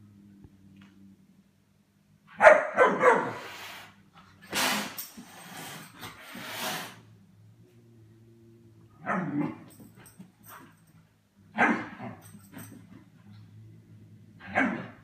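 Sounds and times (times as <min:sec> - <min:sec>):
puppy barking: 0:02.3 - 0:03.4, 0:11.6 - 0:12.0
breathy hissing noises: 0:03.3 - 0:07.2.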